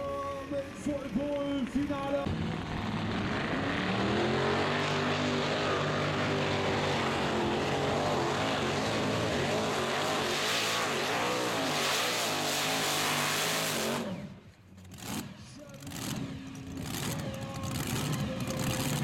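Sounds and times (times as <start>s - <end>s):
racing tractor engine at full load: 0.0s - 19.0s.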